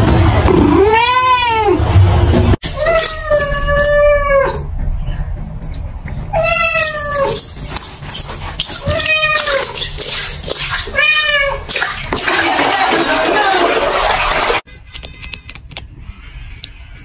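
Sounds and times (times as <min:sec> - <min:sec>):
cat meowing: 0:00.8 - 0:01.8, 0:02.7 - 0:04.7, 0:06.3 - 0:07.4, 0:08.8 - 0:09.8, 0:10.8 - 0:11.7.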